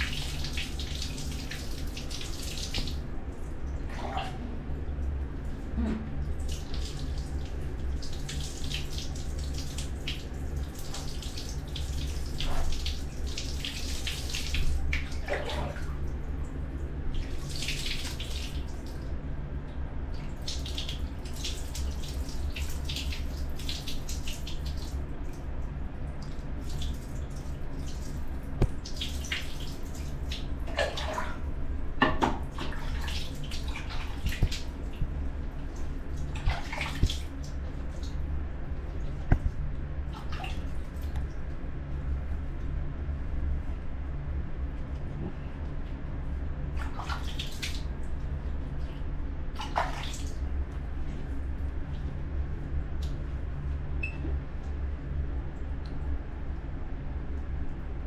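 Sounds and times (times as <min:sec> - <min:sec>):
water pouring and splashing: 0:00.0 - 0:04.5, 0:06.2 - 0:16.4, 0:17.1 - 0:19.2, 0:20.2 - 0:25.5, 0:26.1 - 0:31.5, 0:32.2 - 0:38.2, 0:39.0 - 0:41.3, 0:46.7 - 0:48.4, 0:49.5 - 0:50.5
steady low hum: 0:00.0 - 0:58.0.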